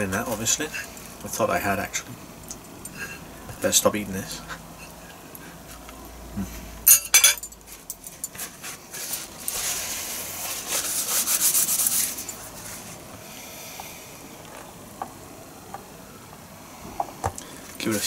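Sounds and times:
cutlery clinking on a plate: 0:06.9 - 0:08.0
paper napkin rustling: 0:08.4 - 0:13.0.

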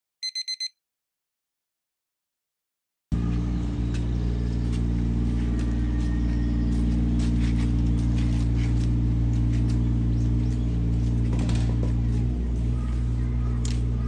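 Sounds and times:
low mechanical hum: 0:03.1 - 0:14.0.

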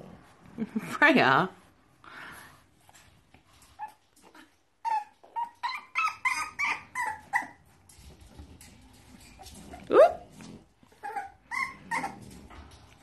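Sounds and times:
dog yipping: 0:04.8 - 0:07.6, 0:11.0 - 0:12.2.

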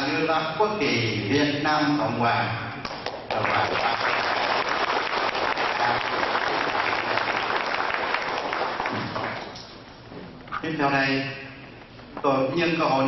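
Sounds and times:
audience applauding: 0:03.0 - 0:09.6.

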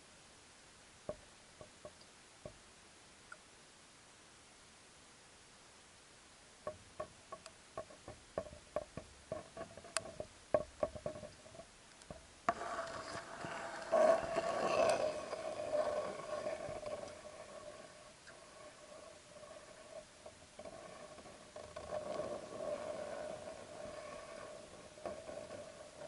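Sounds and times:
rough rubbing scraping noise: 0:12.5 - 0:26.0.

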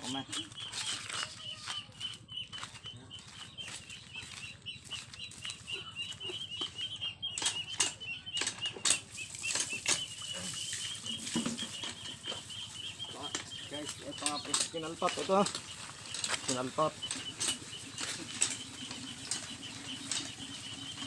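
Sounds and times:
rapid high-pitched chirping: 0:00.0 - 0:21.0
hand water pump knocking: 0:06.6 - 0:21.0.

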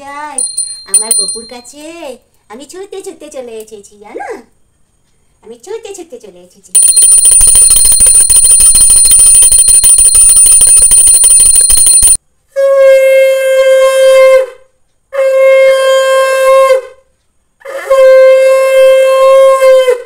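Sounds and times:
hand bell ringing rapidly: 0:00.4 - 0:01.7, 0:06.8 - 0:12.2.

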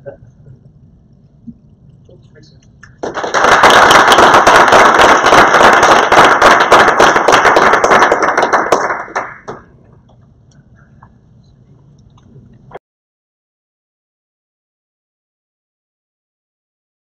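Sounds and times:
audience applauding: 0:02.8 - 0:09.7.

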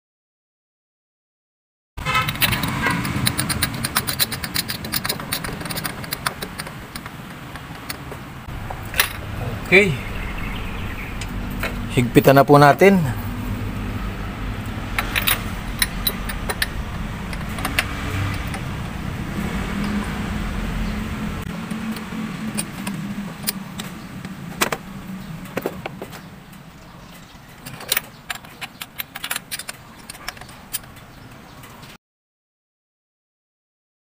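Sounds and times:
wrench clicking on metal: 0:02.2 - 0:08.0, 0:15.0 - 0:18.6, 0:21.6 - 0:24.3, 0:27.6 - 0:31.1.

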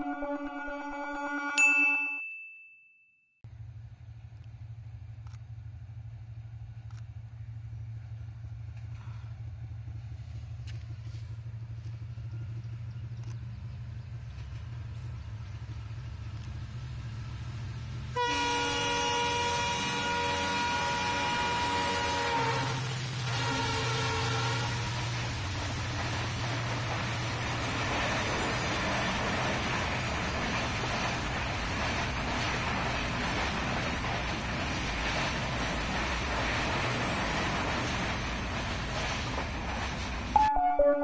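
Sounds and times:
diesel locomotive drone: 0:00.0 - 0:01.6, 0:03.5 - 0:41.0
chiming logo jingle: 0:01.6 - 0:03.4.

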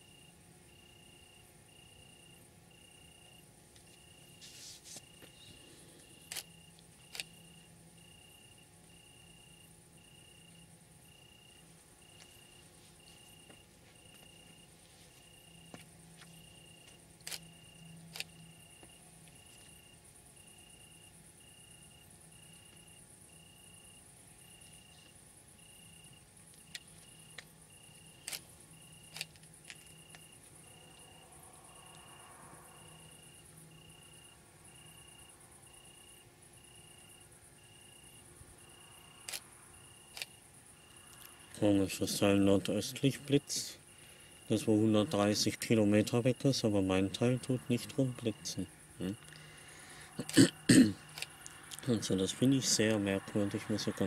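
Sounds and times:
crickets chirping: 0:00.0 - 0:54.0
high-pitched insect trill: 0:00.0 - 0:54.0
sharp clicks: 0:06.2 - 0:07.4, 0:16.8 - 0:18.5, 0:28.2 - 0:30.3, 0:39.2 - 0:40.4.

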